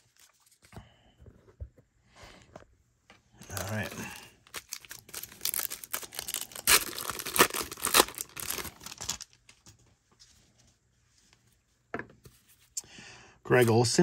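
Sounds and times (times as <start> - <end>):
wrapper tearing and crinkling: 3.4 - 9.4.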